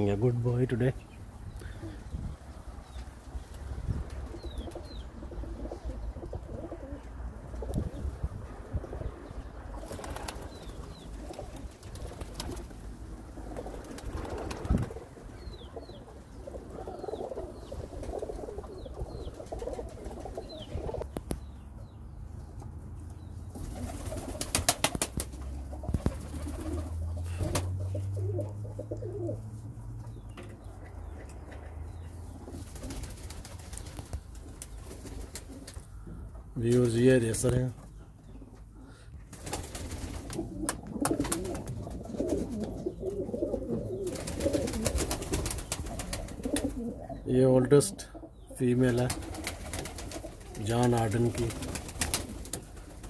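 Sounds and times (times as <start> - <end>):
pigeons cooing: 0.9 - 22.0, 23.3 - 37.2, 37.9 - 53.0.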